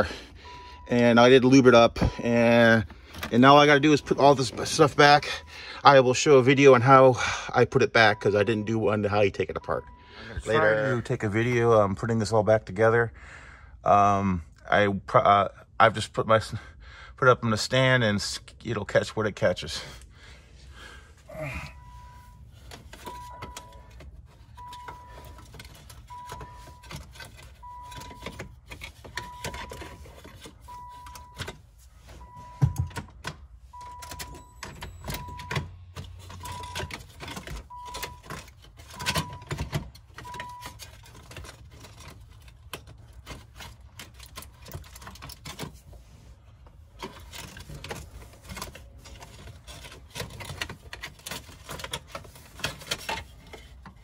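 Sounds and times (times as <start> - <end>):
car warning chime beeping: 0.0 - 7.0, 7.6 - 11.1, 21.7 - 41.0.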